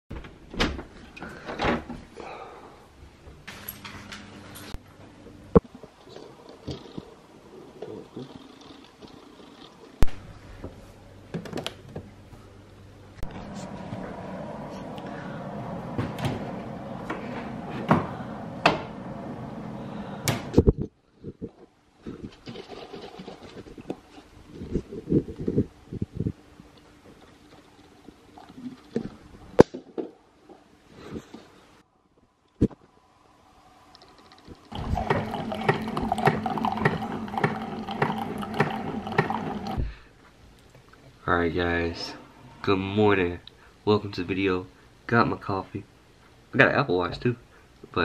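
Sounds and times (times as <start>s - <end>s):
doors and drawer opening and closing: 0.1s - 2.1s, 3.3s - 4.8s, 13.2s - 20.7s
coffee maker pump pulsing: 34.7s - 39.8s.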